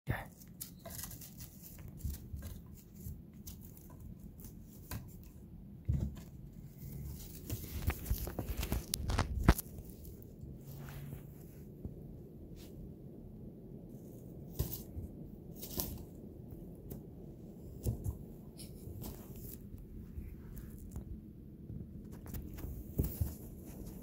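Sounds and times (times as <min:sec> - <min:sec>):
rustles: 0:00.3 - 0:12.8, 0:13.9 - 0:17.0.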